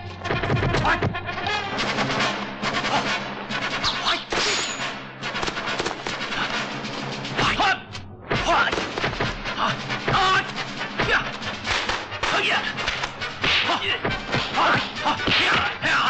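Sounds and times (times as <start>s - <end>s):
punch and kick impacts: 13.4s - 15.7s.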